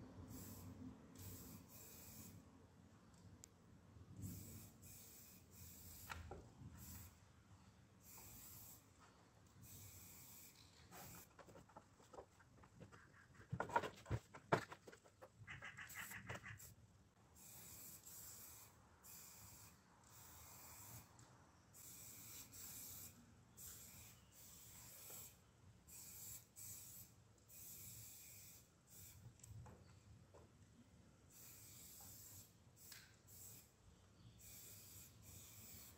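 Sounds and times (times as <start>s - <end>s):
spray paint can hissing: 0.3s - 2.4s, 4.2s - 6.2s, 6.8s - 7.2s, 8.0s - 8.9s, 9.6s - 11.7s, 17.4s - 21.1s, 21.8s - 29.2s, 31.3s - 33.7s, 34.4s - 35.9s.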